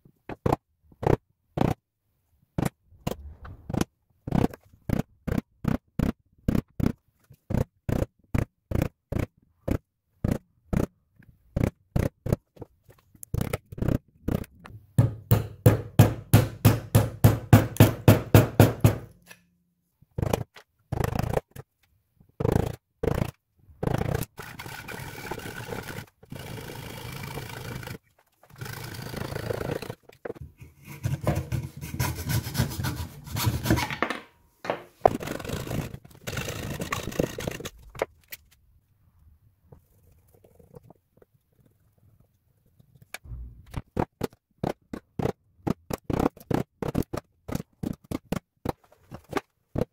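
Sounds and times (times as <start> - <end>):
hand saw cutting wood: 24.1 - 30.0, 30.6 - 34.0.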